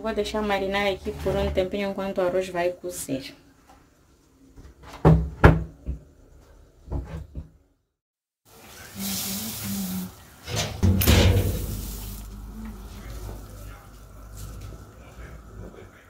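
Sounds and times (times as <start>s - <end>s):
kitchen knocks and clatter: 4.6s - 6.1s, 10.5s - 11.8s.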